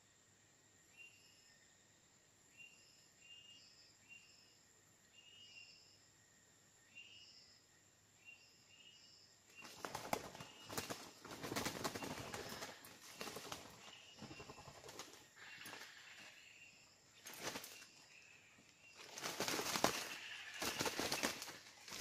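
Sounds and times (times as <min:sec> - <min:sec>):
wings flapping: 0:09.6 - 0:16.4, 0:17.2 - 0:18.2, 0:18.9 - 0:22.0.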